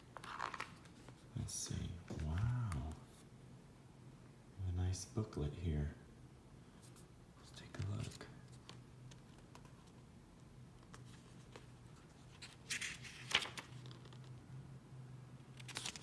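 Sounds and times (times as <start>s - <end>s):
page turning: 0.1s - 1.2s, 10.8s - 14.4s, 15.5s - 16.0s
paper pages rustling: 0.1s - 1.2s, 10.8s - 14.4s, 15.5s - 16.0s.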